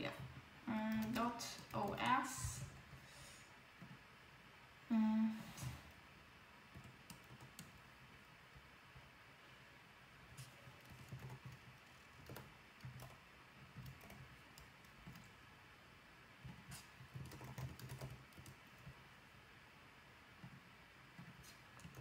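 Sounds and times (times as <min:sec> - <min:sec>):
faint keyboard typing: 0:00.0 - 0:03.0, 0:06.7 - 0:07.9, 0:10.3 - 0:15.4, 0:16.4 - 0:19.1, 0:20.4 - 0:22.0.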